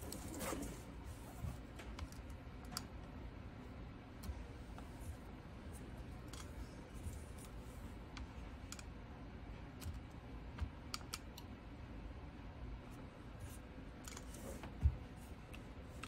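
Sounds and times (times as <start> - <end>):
low room hum: 0.0 - 16.0.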